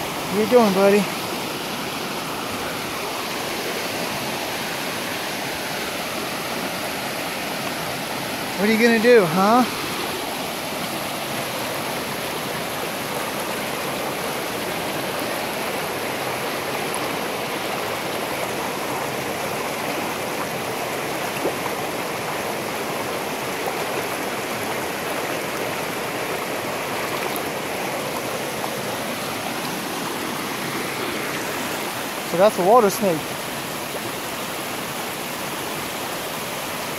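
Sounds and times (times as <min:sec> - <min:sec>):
stream rushing over rock: 0:00.0 - 0:36.9.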